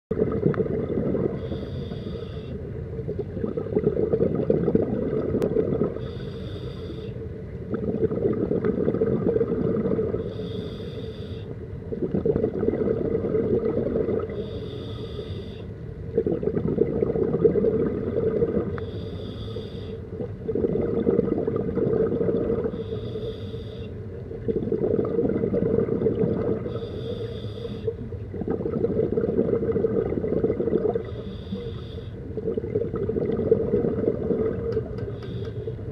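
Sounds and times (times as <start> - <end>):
exhaled bubbles rushing: 0.1 - 1.5, 2.9 - 6.1, 7.6 - 10.3, 11.8 - 14.4, 16.0 - 18.8, 20.0 - 22.9, 24.1 - 26.8, 27.9 - 31.3, 32.2 - 35.9
regulator inhale hiss: 1.3 - 2.6, 6.0 - 7.2, 10.2 - 11.6, 14.3 - 15.7, 18.7 - 20.1, 22.7 - 24.0, 26.6 - 28.0, 31.0 - 32.2, 35.0 - 35.8.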